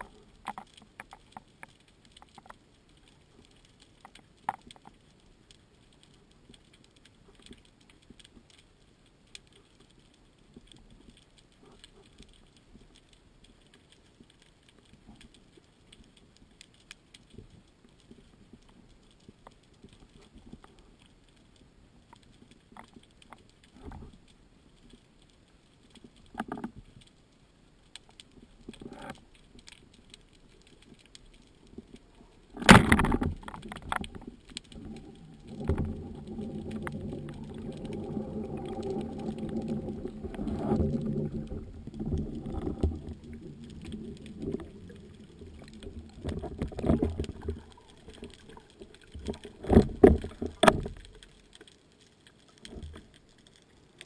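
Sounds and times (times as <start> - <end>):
faint underwater clicks: 0.0 - 54.0
rumbling rush of water: 32.5 - 51.2.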